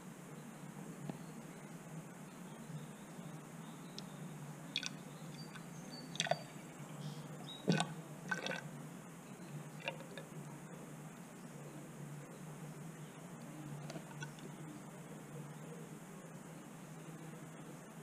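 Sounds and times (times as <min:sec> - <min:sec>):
steady low hum: 0:00.0 - 0:18.0
oil drips and glugs: 0:06.2 - 0:06.5, 0:07.7 - 0:08.6.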